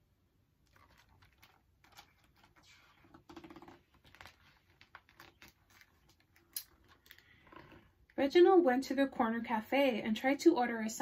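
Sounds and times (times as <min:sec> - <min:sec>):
book pages rustling: 0:00.7 - 0:07.8.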